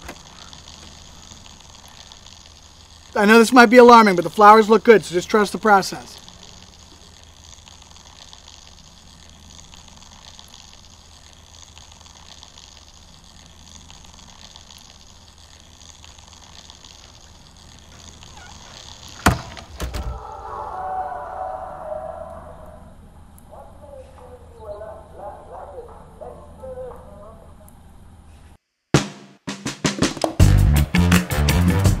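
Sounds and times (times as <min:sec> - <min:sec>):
low background ambience: 0:00.0 - 0:28.8.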